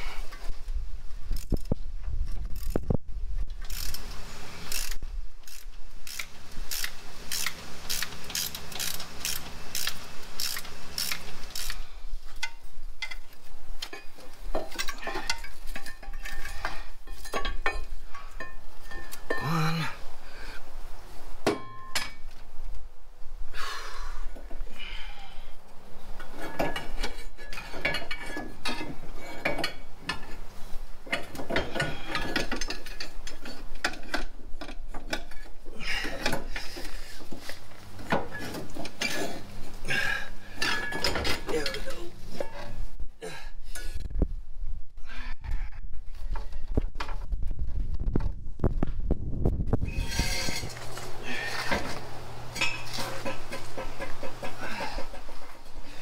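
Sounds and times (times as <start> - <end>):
ratchet wrench clicking: 1.3 - 1.7, 2.5 - 2.8, 3.6 - 4.0, 4.7 - 11.8.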